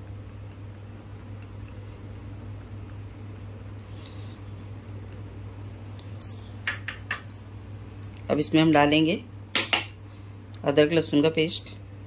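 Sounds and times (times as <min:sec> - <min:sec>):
faint regular ticking: 0:00.0 - 0:06.3
low room hum: 0:00.0 - 0:12.0.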